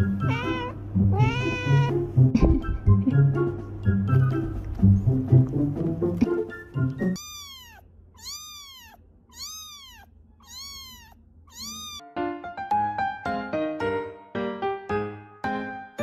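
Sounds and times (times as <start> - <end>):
cat meowing: 0.0 - 2.0, 7.2 - 12.0
upbeat background music: 0.9 - 7.2.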